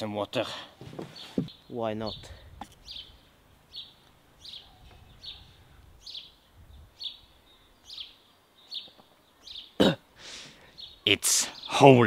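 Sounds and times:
small bird chirping: 1.1s - 9.8s.

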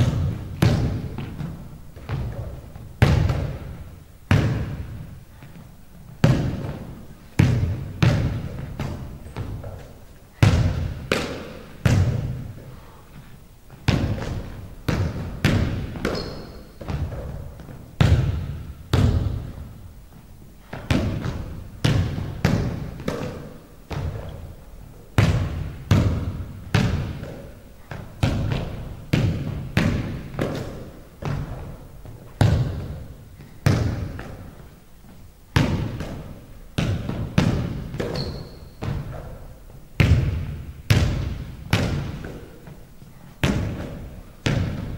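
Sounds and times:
basketball bouncing on wooden floor: 0.0s - 5.6s, 6.2s - 12.4s, 13.7s - 19.6s, 20.7s - 24.5s, 25.2s - 34.6s, 35.5s - 42.8s, 43.4s - 44.9s.

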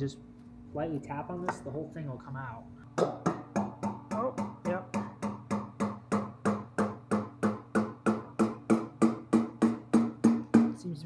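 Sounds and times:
rubber mallet tapping metal shaft: 3.0s - 10.8s.

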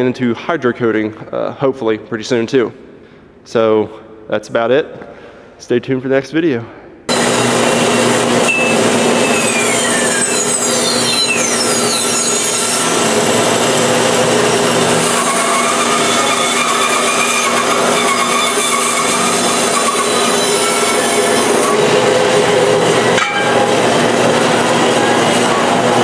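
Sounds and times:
metal rasping: 7.2s - 26.0s
tool squeals falling in pitch: 7.8s - 12.9s, 15.2s - 21.8s.

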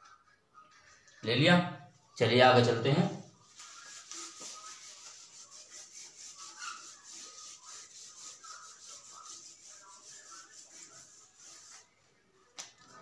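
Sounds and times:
hand rubbing on whiteboard: 3.4s - 11.9s.

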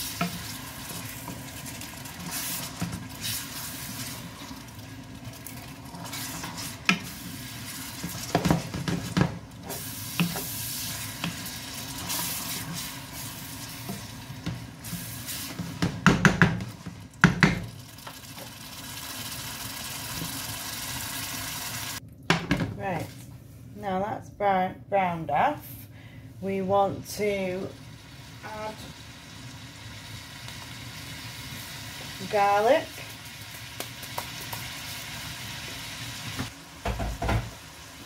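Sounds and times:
meat sizzling in a frying pan: 0.0s - 15.8s, 17.1s - 22.0s, 27.8s - 38.0s
wooden spatula scraping a pan: 2.0s - 4.3s, 5.9s - 16.0s.

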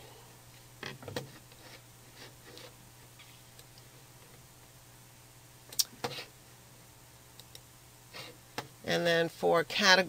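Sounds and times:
low steady hum: 0.0s - 10.0s
computer mouse clicks: 7.4s - 7.6s.

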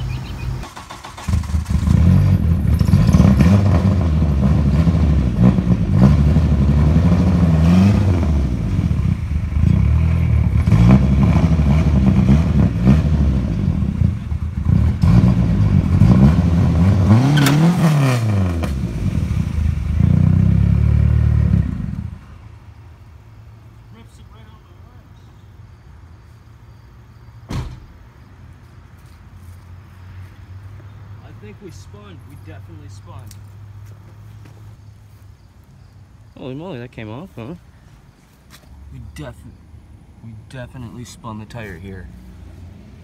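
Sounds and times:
car engine revving hard: 0.6s - 22.1s.

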